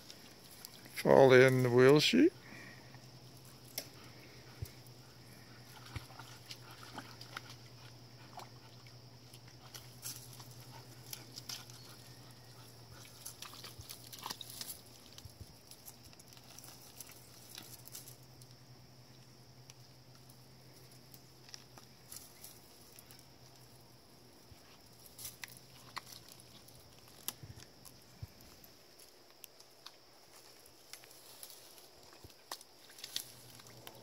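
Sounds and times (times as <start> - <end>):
faint steady hiss: 0.0 - 34.0
paws splashing in muddy water: 3.2 - 18.4, 24.5 - 29.1.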